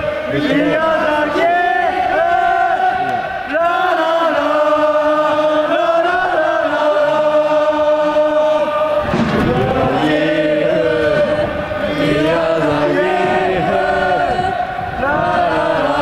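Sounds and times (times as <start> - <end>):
football crowd singing a chant: 0.0 - 16.0.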